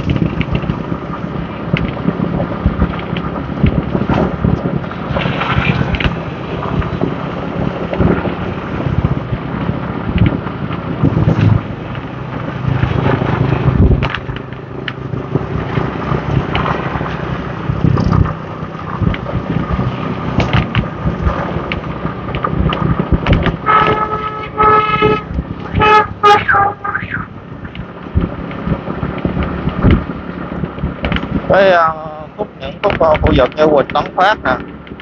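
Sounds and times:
wind and road noise: 0:00.0 - 0:35.0
vehicle horn toots: 0:23.6 - 0:27.3.

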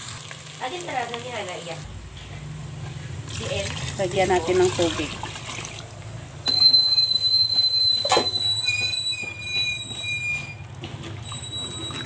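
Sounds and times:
ladle scraping steel pot: 0:06.5 - 0:12.0.

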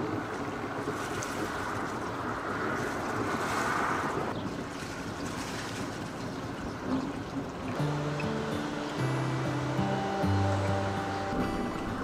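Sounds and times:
boat engine running: 0:07.0 - 0:12.0.

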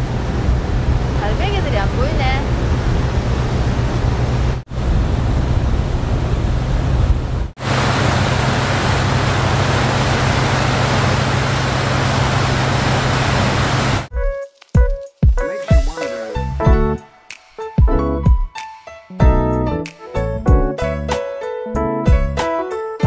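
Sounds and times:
low engine drone: 0:00.0 - 0:14.1.

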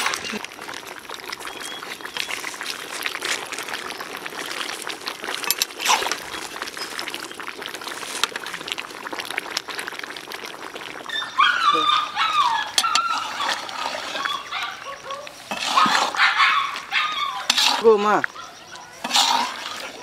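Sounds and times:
crackles and pops: 0:00.0 - 0:20.0
meat sizzling in gravy: 0:00.0 - 0:20.0.

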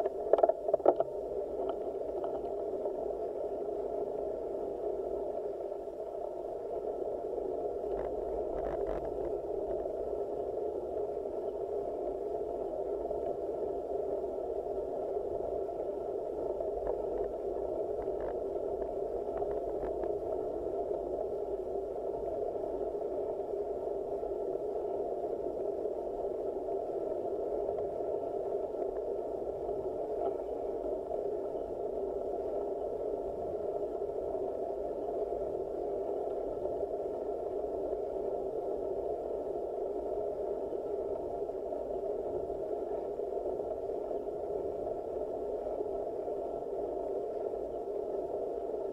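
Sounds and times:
faint clicks: 0:00.0 - 0:02.6.

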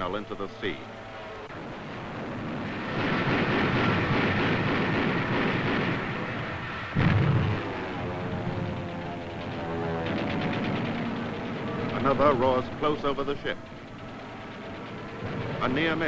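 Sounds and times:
steady droning: 0:00.0 - 0:16.0
anti-aircraft gunfire rattling: 0:01.7 - 0:16.0
heavy boom: 0:07.0 - 0:07.8.

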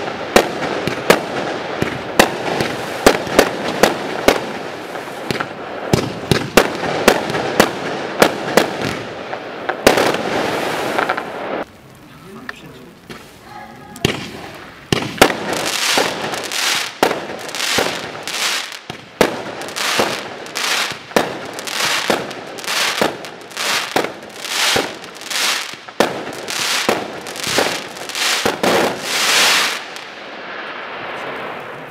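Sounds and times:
hissing firework bursts: 0:00.0 - 0:31.9
firework cake shots: 0:10.9 - 0:30.0.

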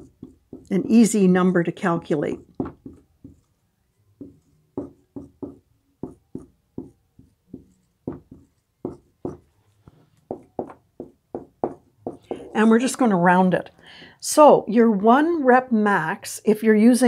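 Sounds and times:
marker writing on whiteboard: 0:00.0 - 0:01.1, 0:02.3 - 0:12.6.

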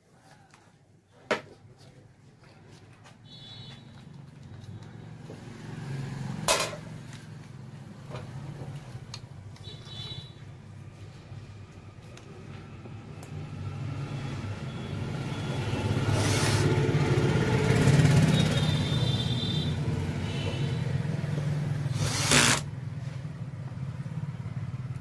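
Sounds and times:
short harsh drill bursts: 0:16.1 - 0:16.7, 0:21.9 - 0:22.7
cordless drill driving screws: 0:21.9 - 0:22.7.

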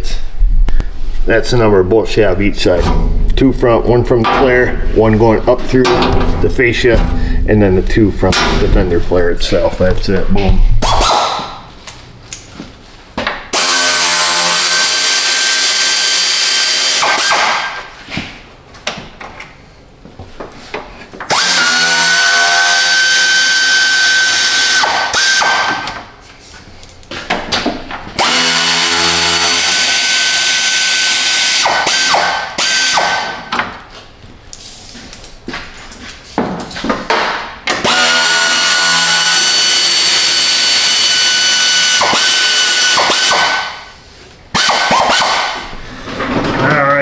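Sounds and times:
cordless power tool whining: 0:21.3 - 0:25.6, 0:28.2 - 0:33.0, 0:37.8 - 0:43.4.

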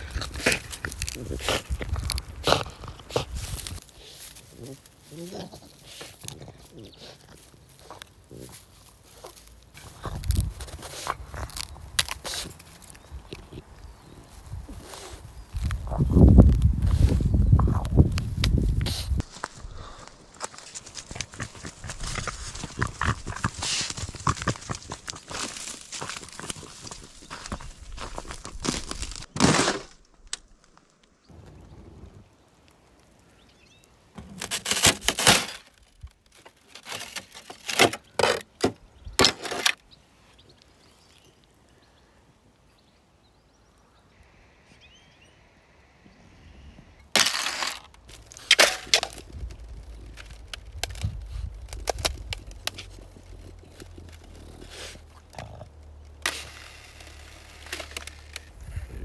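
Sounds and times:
ice cracking and shattering: 0:21.8 - 0:31.0, 0:34.4 - 0:38.4, 0:47.1 - 0:54.3.

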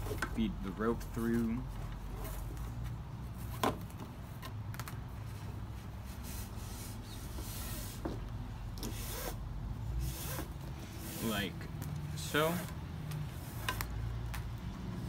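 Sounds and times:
rope rubbing and swishing: 0:01.4 - 0:03.5, 0:05.1 - 0:08.3, 0:08.9 - 0:14.3.

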